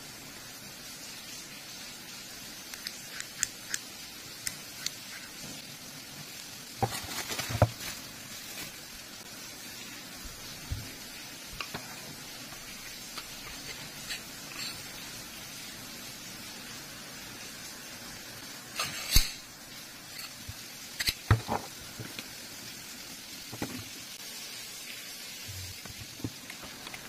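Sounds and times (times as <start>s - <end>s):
steady hiss: 0.0s - 27.0s
bubble wrap crinkling: 6.2s - 9.3s.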